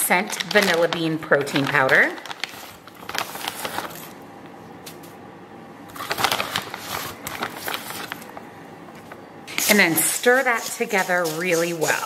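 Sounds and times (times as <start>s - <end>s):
cereal rustling and crackling: 0.2s - 4.2s, 5.9s - 8.4s.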